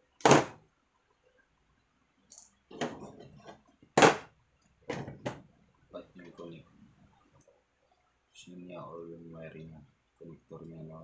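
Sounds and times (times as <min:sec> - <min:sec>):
knocks and clatters on tabletop: 0:02.7 - 0:04.3, 0:04.9 - 0:05.5.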